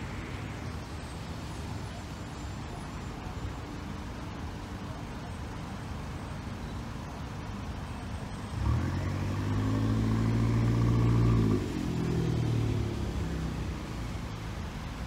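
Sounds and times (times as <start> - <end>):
traffic hum: 0.0 - 15.0
car engine pulling away: 8.4 - 15.0.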